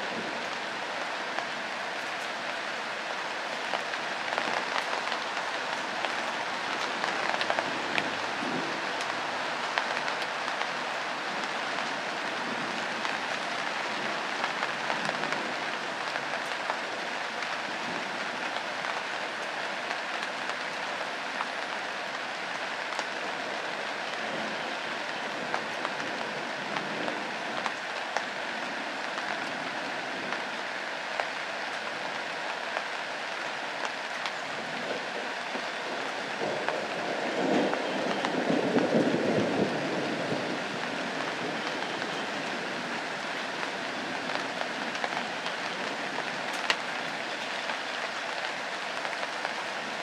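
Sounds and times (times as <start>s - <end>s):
rain hissing on leaves: 0.0s - 50.0s
raindrop ticks: 3.6s - 16.8s, 33.8s - 39.7s, 40.7s - 50.0s.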